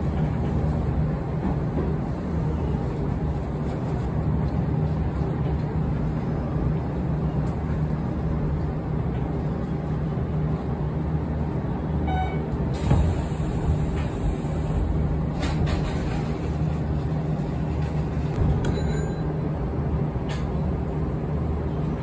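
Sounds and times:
train wheels rumbling on rails: 0.0s - 22.0s
short beep: 12.1s - 12.5s.

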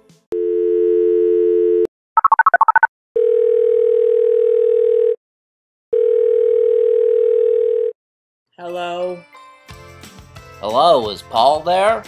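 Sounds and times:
telephone dial tone: 0.4s - 5.2s, 6.0s - 8.0s
telephone ringback tone: 0.4s - 5.2s, 6.0s - 8.0s
touch-tone dialing beeps: 2.2s - 2.9s.

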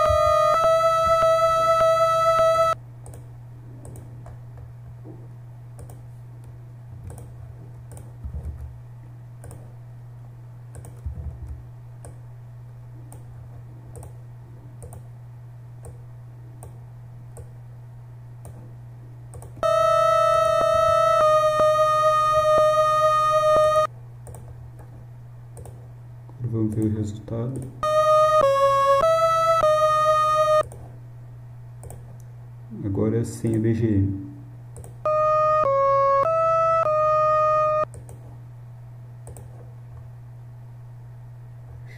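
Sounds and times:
loud pitched tone with overtones: 0.0s - 2.8s, 19.6s - 23.9s, 27.8s - 30.6s, 35.0s - 37.9s
low hum: 0.0s - 26.5s, 34.1s - 41.9s.

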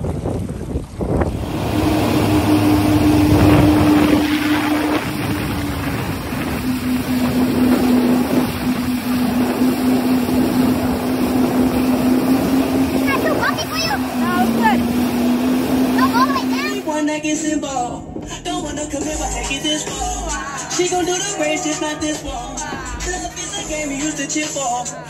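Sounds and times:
spray and wind rushing: 0.0s - 17.4s
jet ski engine drone: 0.0s - 24.4s.

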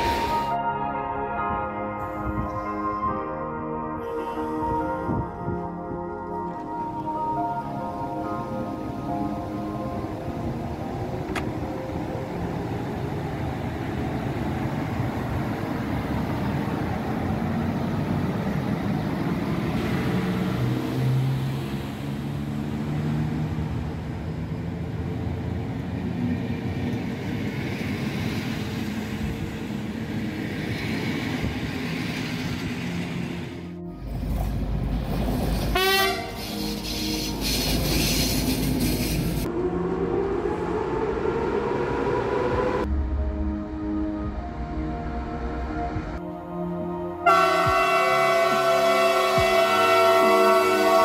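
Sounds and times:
train wheels rumbling on rail: 24.6s - 39.5s.

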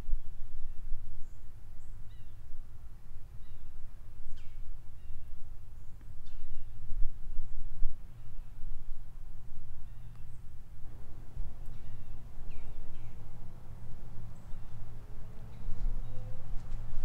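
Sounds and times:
low uneven rumble: 0.0s - 17.0s
faint bird chirps: 0.2s - 2.4s, 3.3s - 8.6s, 9.8s - 10.5s, 11.6s - 13.3s, 15.5s - 16.7s.

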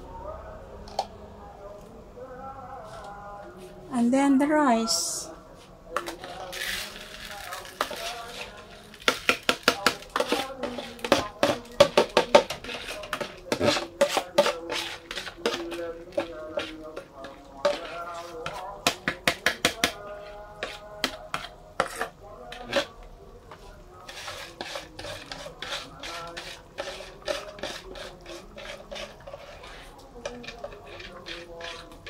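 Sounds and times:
plastic scoop scraping metal pot: 6.0s - 20.0s, 20.6s - 23.0s, 24.0s - 32.0s.

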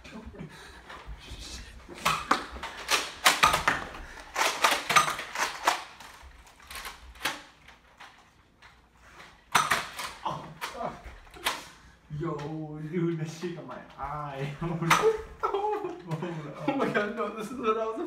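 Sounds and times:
toy blaster clicks and knocks: 2.1s - 8.2s.

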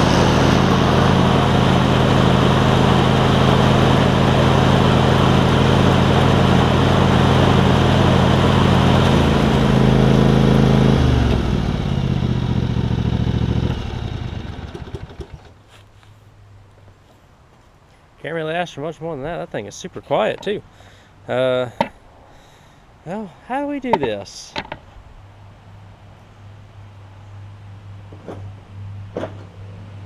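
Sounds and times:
riding mower engine running: 0.0s - 16.1s, 23.5s - 24.8s.

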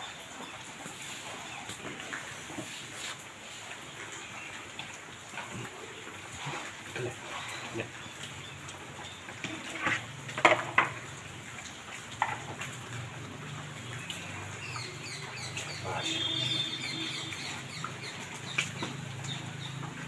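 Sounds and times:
sharp knocks and clatters: 9.8s - 11.0s.

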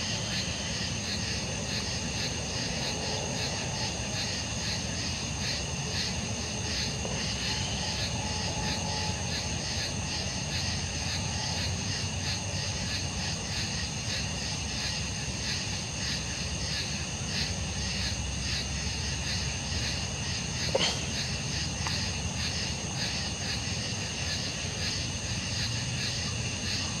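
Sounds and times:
crickets chirping: 0.0s - 27.0s
constant high ringing: 15.7s - 27.0s.

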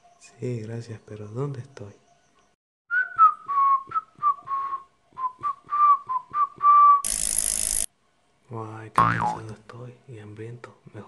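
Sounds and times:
person whistling a tune: 2.9s - 7.1s.

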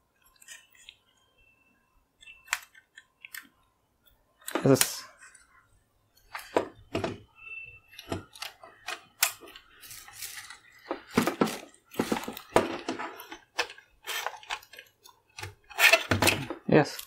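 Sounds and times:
cables and plugs clattering: 10.4s - 17.0s.

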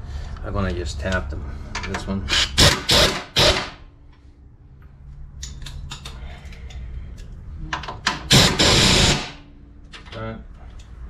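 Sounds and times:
impact wrench hammering burst: 2.3s - 3.9s, 8.2s - 9.5s.

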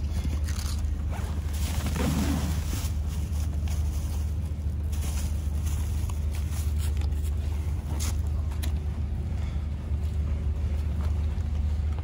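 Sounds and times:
rustling and scraping of supplies: 0.0s - 8.8s
steady low rumble: 0.0s - 12.0s.

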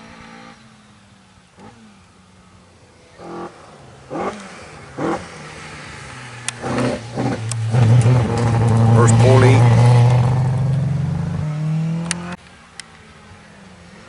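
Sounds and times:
rally car engine revving: 3.1s - 12.4s.

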